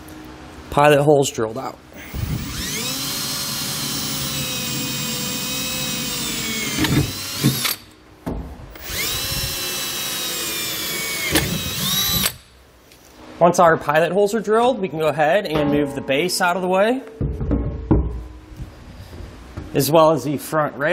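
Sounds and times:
cordless drill whining: 2.0s - 7.9s, 8.7s - 12.5s.

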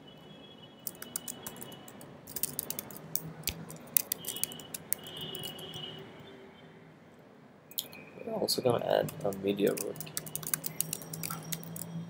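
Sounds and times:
keyboard typing: 0.8s - 5.8s, 8.8s - 12.0s.

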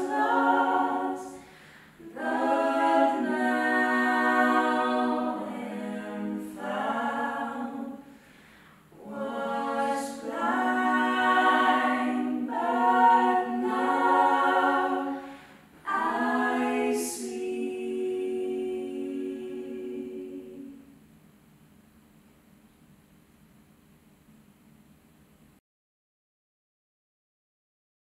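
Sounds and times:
gospel group singing held chords: 0.0s - 21.0s.

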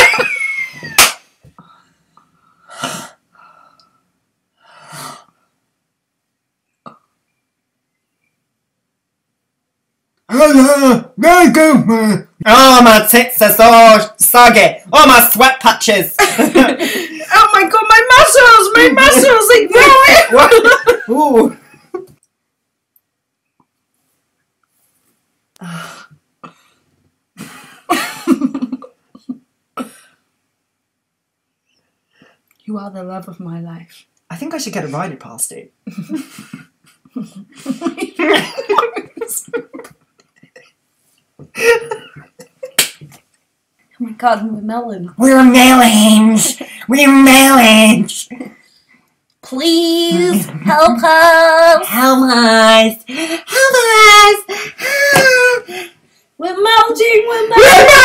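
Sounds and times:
person laughing hard: 0.0s - 1.1s, 36.0s - 40.7s, 41.5s - 42.8s, 54.5s - 55.8s
person sighing: 54.5s - 56.0s.

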